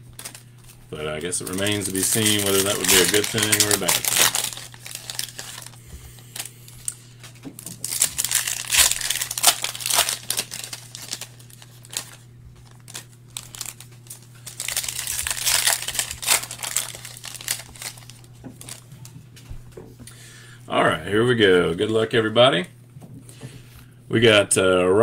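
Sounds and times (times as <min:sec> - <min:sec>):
foil wrapper crinkling and tearing: 0:00.0 - 0:19.1.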